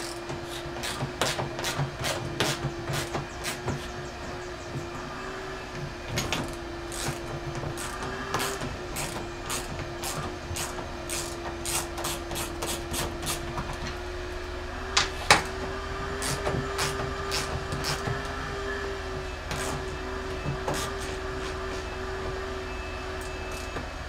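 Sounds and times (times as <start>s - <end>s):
steady hum: 0.0s - 24.0s
hand ratchet clicking: 7.8s - 13.4s.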